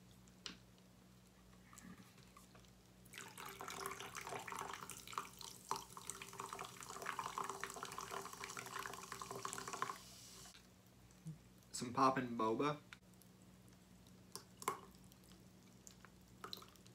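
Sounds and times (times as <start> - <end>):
drink pouring and fizzing: 2.4 - 10.6, 14.3 - 16.9.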